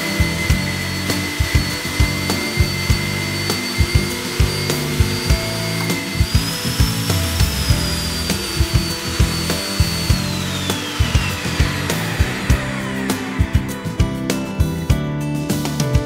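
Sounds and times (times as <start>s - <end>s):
drilling machine whining: 0.0s - 15.6s
background music with a beat: 0.0s - 16.0s.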